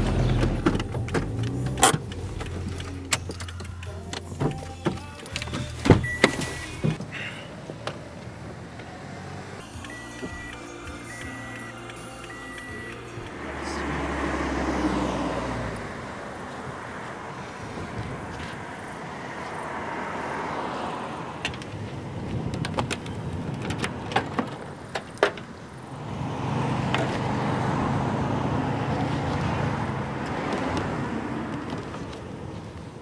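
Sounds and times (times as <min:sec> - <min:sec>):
vehicle road noise: 0:00.0 - 0:33.0
metallic clicks and knocks of tools: 0:00.7 - 0:05.6.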